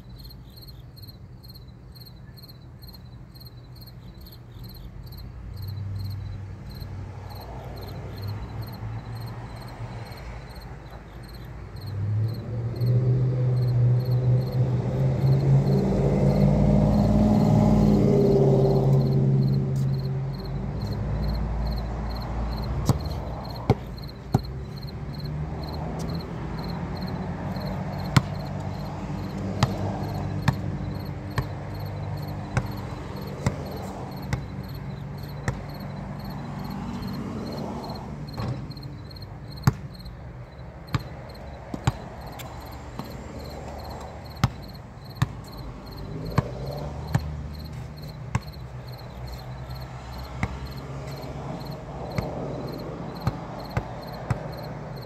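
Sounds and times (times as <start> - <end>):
crickets chirping: 0.0 - 55.0
basketball bouncing on concrete: 14.5 - 55.0.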